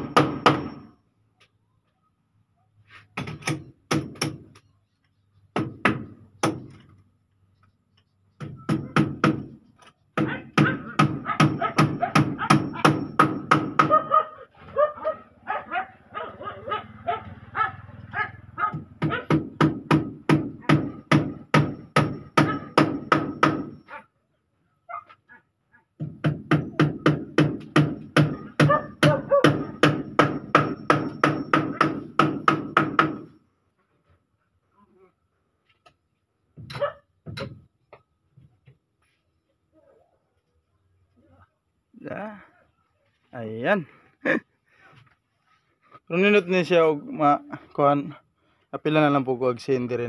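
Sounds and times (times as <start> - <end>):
hammer driving nails into wood: 0.0 - 0.8, 3.2 - 4.6, 5.6 - 6.9, 8.4 - 14.0, 19.0 - 23.8, 26.0 - 33.4.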